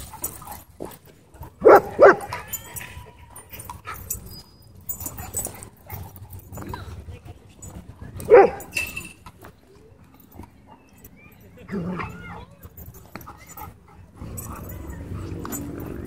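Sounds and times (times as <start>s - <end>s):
dog barking: 1.6s - 2.4s, 8.3s - 8.7s.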